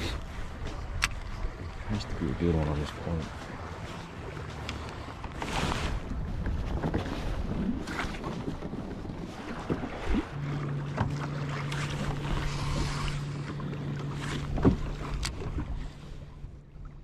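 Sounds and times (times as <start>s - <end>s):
water lapping against a hull: 0.0s - 17.0s
wind buffeting microphone: 5.2s - 10.4s
low steady hum: 7.2s - 17.0s.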